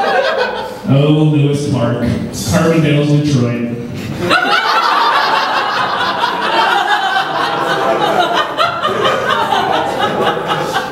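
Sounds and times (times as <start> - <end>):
audience laughing: 0.0 - 0.8, 4.0 - 10.9.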